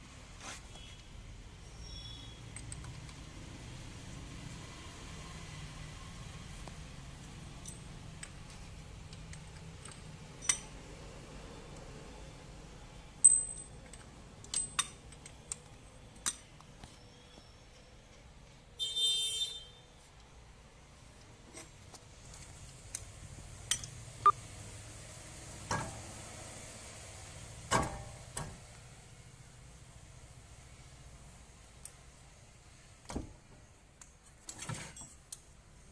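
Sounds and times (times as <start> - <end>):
metal tools clinking: 13.2 - 16.5.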